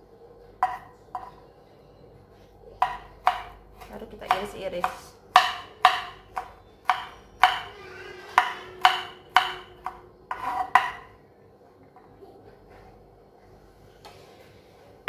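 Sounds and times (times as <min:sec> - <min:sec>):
knife chopping on wooden board: 0:02.8 - 0:07.6, 0:08.4 - 0:11.0.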